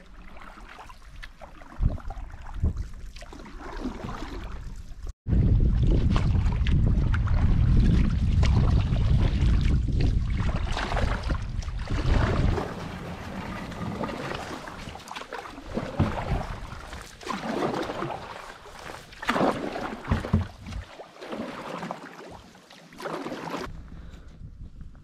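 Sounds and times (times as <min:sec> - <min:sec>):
paddles splashing in water: 0:00.0 - 0:23.7
low rumble on microphone: 0:04.4 - 0:14.8, 0:23.7 - 0:25.0.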